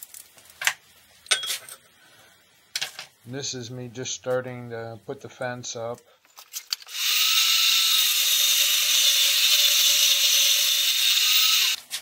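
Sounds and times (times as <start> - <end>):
grinder grinding metal: 6.9 - 11.8.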